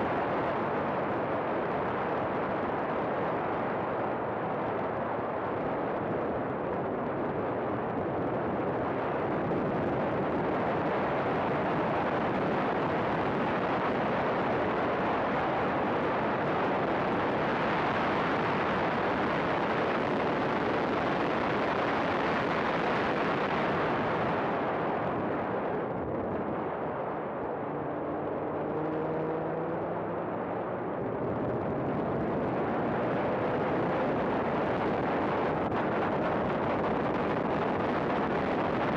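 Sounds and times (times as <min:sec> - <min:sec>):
wind and road noise: 0:00.0 - 0:38.9
race car engine accelerating: 0:27.8 - 0:30.2.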